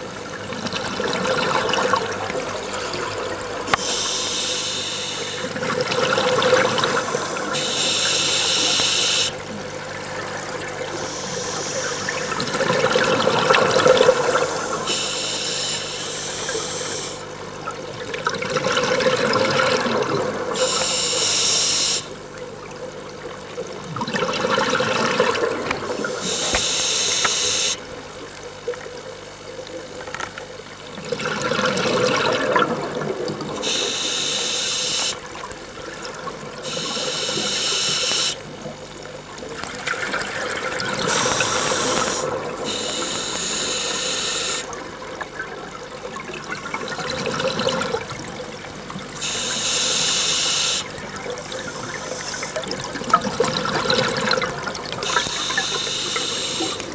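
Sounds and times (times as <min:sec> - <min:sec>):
gurgling exhaled bubbles: 0:00.0 - 0:15.3, 0:16.2 - 0:21.0, 0:22.2 - 0:26.5, 0:30.7 - 0:34.3, 0:38.4 - 0:49.3, 0:50.8 - 0:56.9
regulator hissing inhales: 0:03.8 - 0:05.4.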